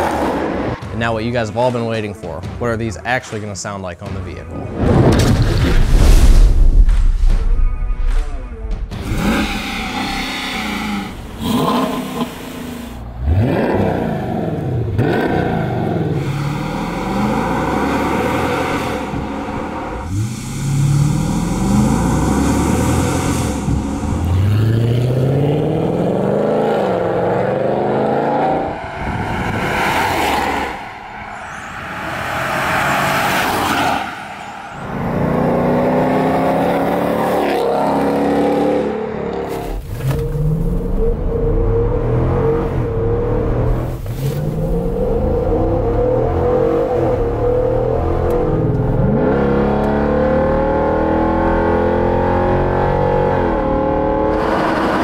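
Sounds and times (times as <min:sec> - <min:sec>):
vee eight exhaust accelerating: 0:13.1 - 0:39.0.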